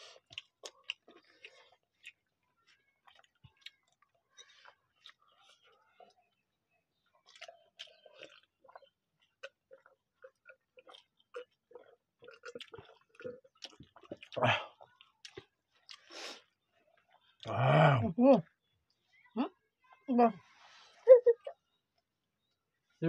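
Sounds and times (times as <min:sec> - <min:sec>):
chewing and lip smacks: 0:00.0 - 0:17.5.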